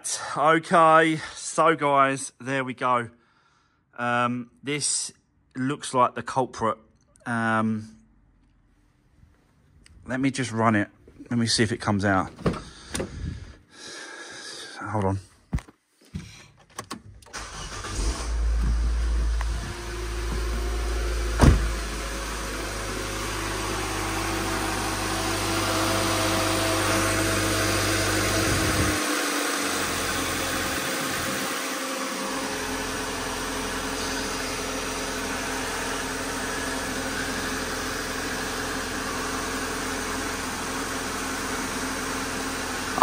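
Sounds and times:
car engine idling: 17.4s - 43.0s.

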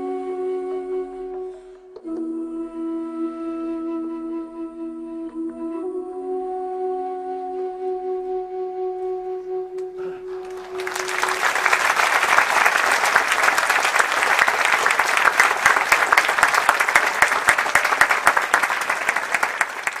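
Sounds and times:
audience applause: 10.3s - 20.0s.

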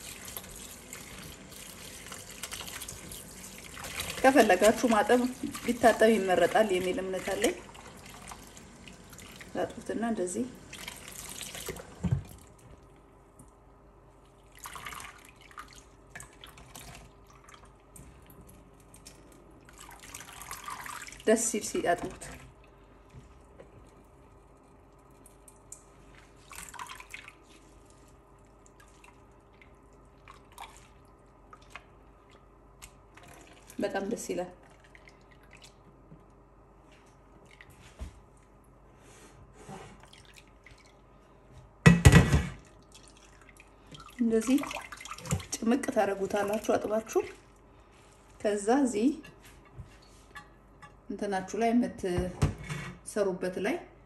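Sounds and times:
water splashes and drips: 0.0s - 10.0s, 14.2s - 23.3s, 25.2s - 36.0s, 40.0s - 41.1s, 42.6s - 48.2s
water dripping from a strainer: 24.9s - 27.6s, 42.6s - 45.6s
hands swishing potato in water: 25.2s - 34.0s.

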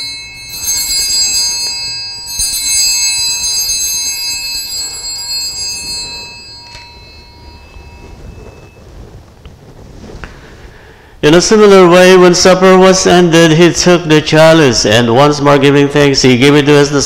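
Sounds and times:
altar bells ringing: 0.0s - 9.4s.

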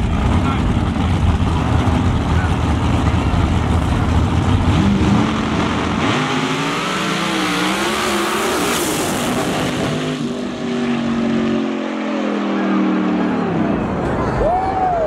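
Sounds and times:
drag racing engines accelerating: 0.0s - 15.0s.

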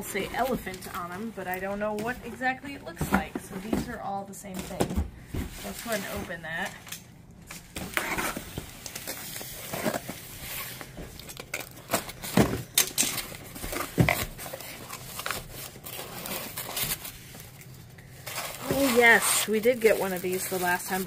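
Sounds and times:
cardboard box scrapes and rustles: 5.5s - 6.4s, 18.2s - 21.0s.

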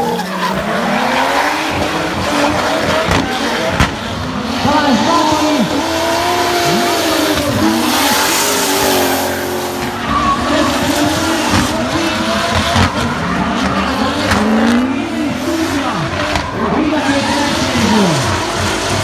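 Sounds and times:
engines revving: 0.0s - 19.0s
tyre squeal and skidding: 4.4s - 14.4s.

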